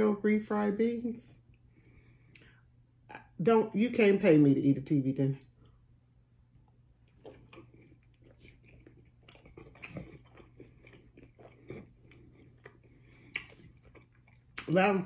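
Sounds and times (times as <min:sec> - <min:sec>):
person chewing crunchy food: 0:05.7 - 0:14.8.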